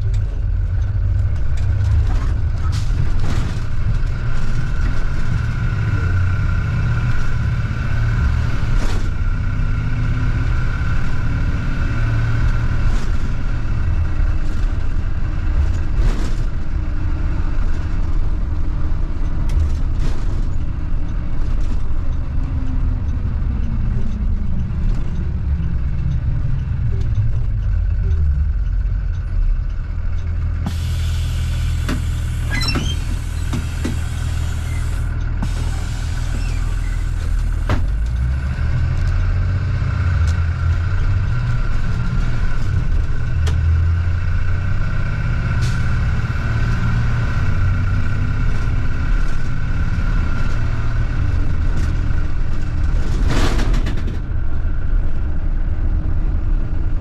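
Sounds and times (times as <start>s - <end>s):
bus engine rumble: 0.0s - 57.0s
road noise: 0.0s - 57.0s
sharp clicks and rattles: 12.4s - 30.7s.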